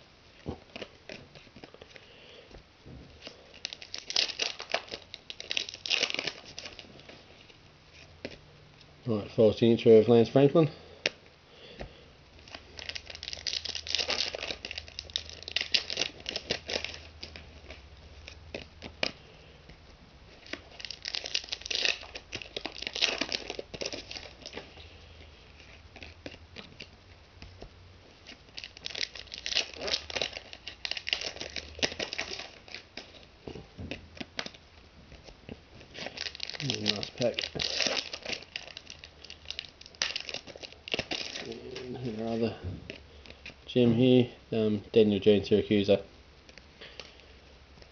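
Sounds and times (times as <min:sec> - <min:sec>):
foil packets crinkling and tearing: 0:03.2 - 0:08.4, 0:12.4 - 0:19.6, 0:20.3 - 0:27.0, 0:28.1 - 0:43.8.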